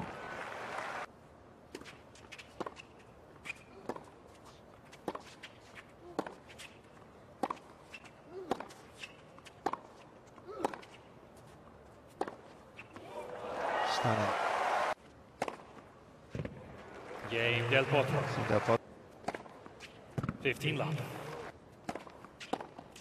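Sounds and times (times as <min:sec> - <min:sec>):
tennis ball bouncing on hard court: 0:07.4 - 0:07.7, 0:08.4 - 0:10.0, 0:12.1 - 0:13.0, 0:15.4 - 0:16.6, 0:19.2 - 0:20.4, 0:21.8 - 0:23.0
racquet striking tennis ball: 0:15.4 - 0:16.5.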